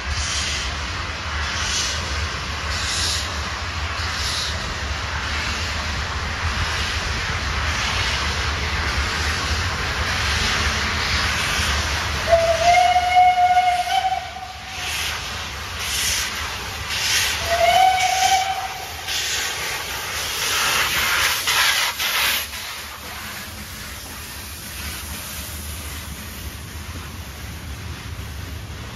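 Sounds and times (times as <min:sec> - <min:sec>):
gusts of steam and exhaust: 0:00.0 - 0:28.9
steam locomotive hissing: 0:00.0 - 0:28.9
steam whistle blasts: 0:12.3 - 0:15.0, 0:17.3 - 0:19.1.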